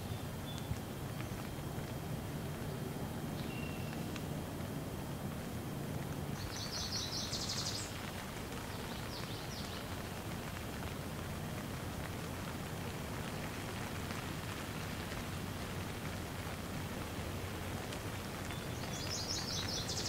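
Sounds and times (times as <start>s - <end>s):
bird chirping: 0.0s - 1.6s, 3.4s - 4.2s, 6.4s - 8.0s, 18.5s - 20.0s
light rain falling: 0.0s - 20.0s.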